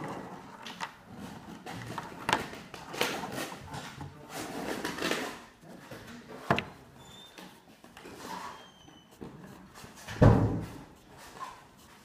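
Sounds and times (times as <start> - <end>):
scraping on paper: 7.1 - 12.0.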